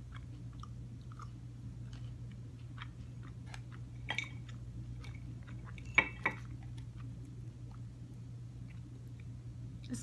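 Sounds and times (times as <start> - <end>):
food crunch: 0.0 - 7.9
close-up chewing: 0.0 - 9.9.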